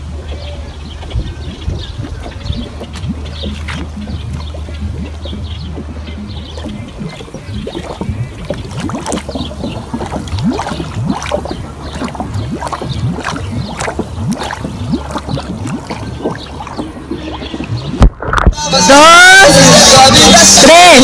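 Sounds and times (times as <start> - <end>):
water sloshing and gurgling: 0.0 - 18.6.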